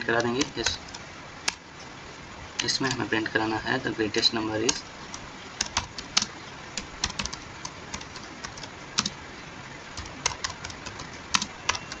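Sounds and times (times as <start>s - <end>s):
keyboard typing clicks: 0.0s - 1.6s, 4.6s - 9.2s, 10.0s - 12.0s
steady background hiss: 0.0s - 12.0s.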